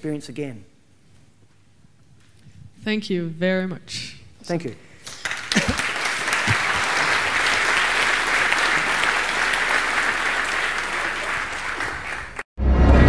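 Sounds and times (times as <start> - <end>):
audience applauding: 5.1 - 12.5.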